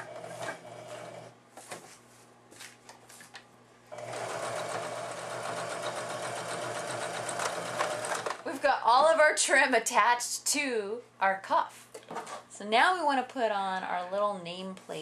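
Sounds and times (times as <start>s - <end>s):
sewing machine stitching: 0.0s - 1.3s, 4.0s - 8.4s.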